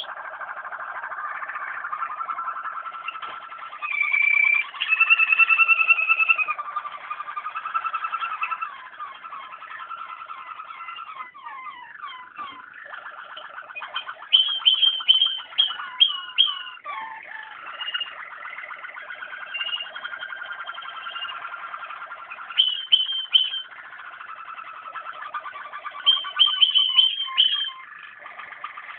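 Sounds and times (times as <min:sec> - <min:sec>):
canary trilling: 0:00.0 - 0:28.9
bright ringing bird notes: 0:07.4 - 0:28.9.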